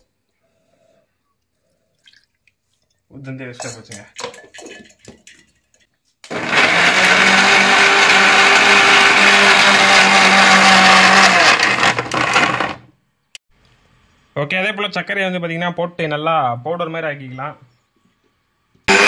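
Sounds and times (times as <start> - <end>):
mixer grinder running: 6.3 - 12.9.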